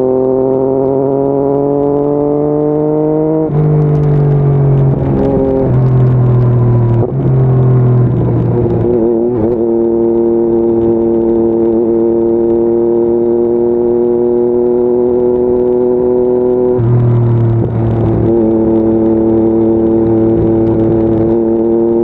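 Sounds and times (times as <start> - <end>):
motorcycle engine under way: 0.0 - 22.0.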